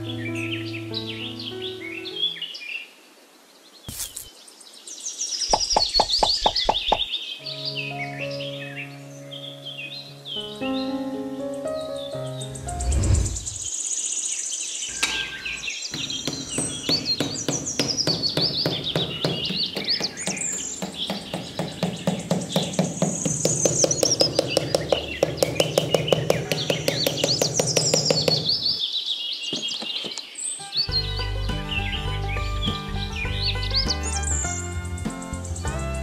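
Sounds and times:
birds chirping: 3.6 - 35.9
fast clicking beat: 16.0 - 28.8.

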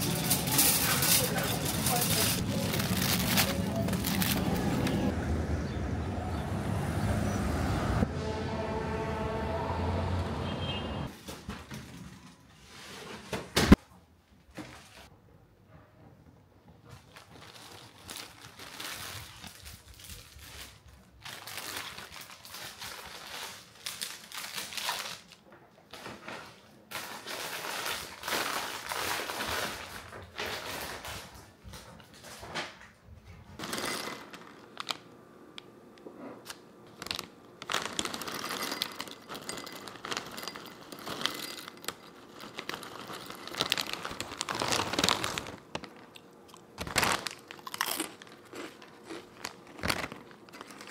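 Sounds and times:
cellophane crinkling and rustling: 0.0 - 5.1, 16.9 - 32.8, 33.6 - 35.1, 36.4 - 50.9.

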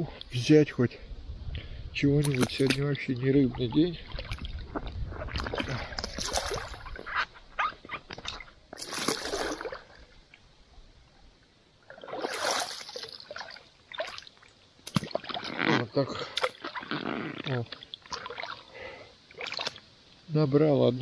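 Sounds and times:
water lapping: 2.2 - 10.4, 11.8 - 19.8
water sloshing and splashing: 2.2 - 10.5, 11.8 - 20.0.

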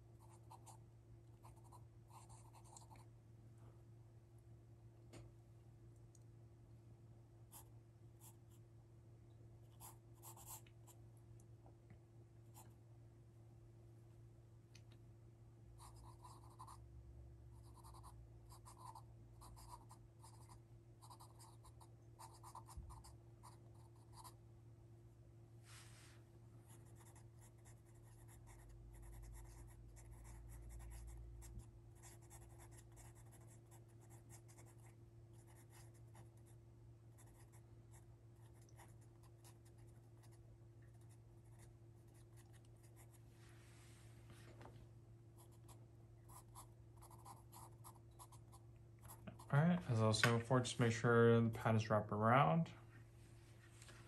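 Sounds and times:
steady low hum: 0.0 - 54.0
pencil scratching on paper: 26.7 - 36.3.

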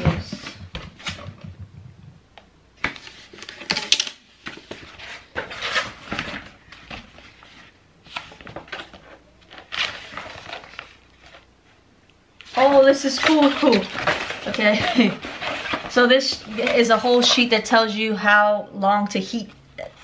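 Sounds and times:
paper rustling: 4.4 - 11.8, 12.4 - 17.5.

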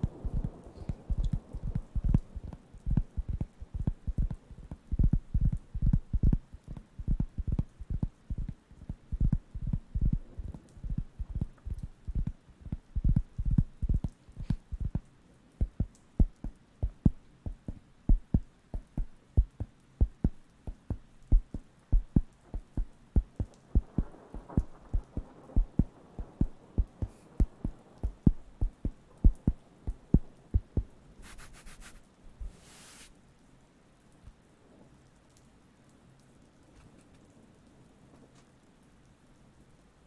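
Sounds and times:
scratchy rubs: 31.2 - 33.1.

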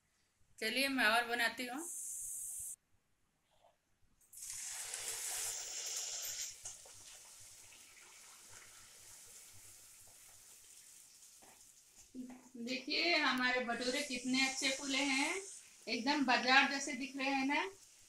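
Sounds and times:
dough sizzling in hot oil: 4.3 - 18.0.

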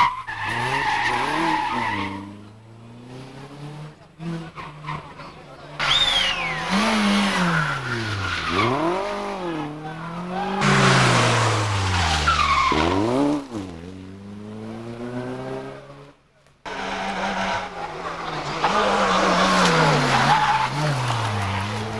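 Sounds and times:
tyre squeal and skidding: 0.0 - 2.5, 4.4 - 13.8, 16.7 - 21.9
rally car engines revving: 0.0 - 21.9.

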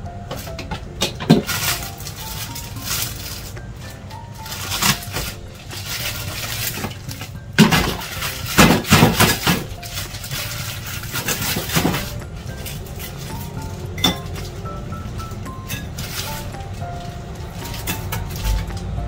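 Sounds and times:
soft background music: 0.0 - 19.0
plastic bag crinkling: 0.4 - 18.9.

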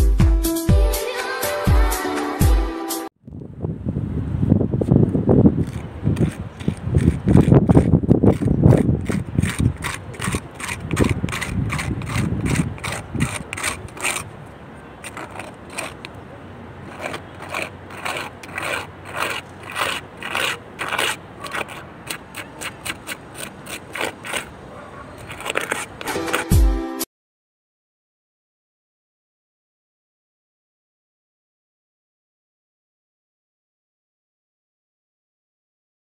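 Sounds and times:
wind buffeting microphone: 3.2 - 25.8
scraper rasping across roof: 5.6 - 14.4, 15.0 - 16.2, 16.8 - 26.7.

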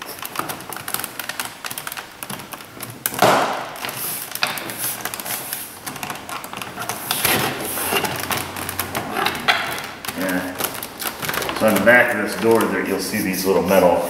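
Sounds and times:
scraping rustle: 3.8 - 14.0.

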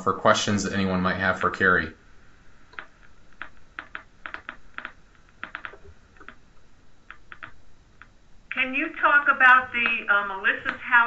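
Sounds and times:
computer keyboard typing: 2.7 - 6.4, 7.0 - 8.1, 9.6 - 11.0.

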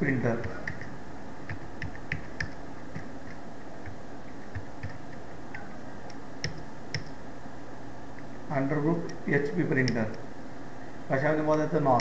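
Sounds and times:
keyboard typing clicks: 0.4 - 0.9, 1.5 - 7.2, 9.8 - 10.2.

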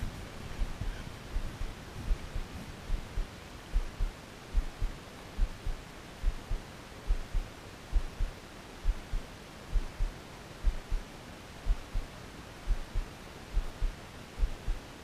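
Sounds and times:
low double thumps of reel: 0.0 - 7.4
wind and water hiss: 0.0 - 15.0.

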